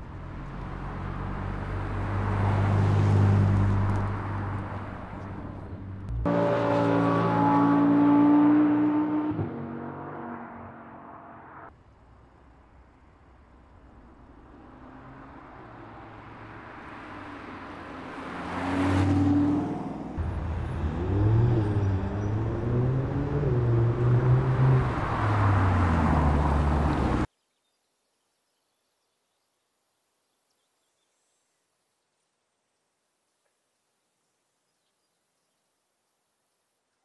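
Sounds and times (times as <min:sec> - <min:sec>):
sports car engine revving: 0:18.8 - 0:27.2.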